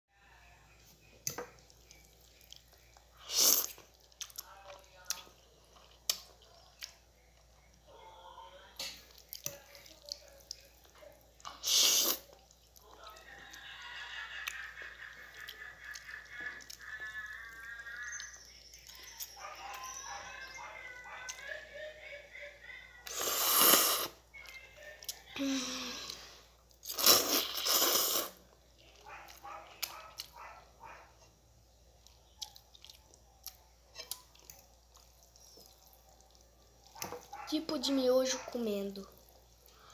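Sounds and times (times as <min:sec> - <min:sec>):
chewing with wet mouth clicks: 0:01.2 - 0:07.9, 0:08.8 - 0:13.2, 0:28.7 - 0:30.5, 0:31.9 - 0:37.5
loud slurp of noodles: 0:11.6 - 0:12.3, 0:23.1 - 0:24.2, 0:26.8 - 0:28.4.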